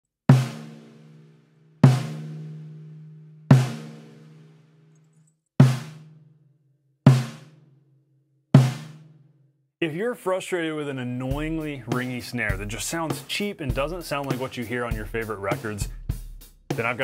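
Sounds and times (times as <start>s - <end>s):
snare drum hits: 8.6s - 9.0s, 11.4s - 16.1s.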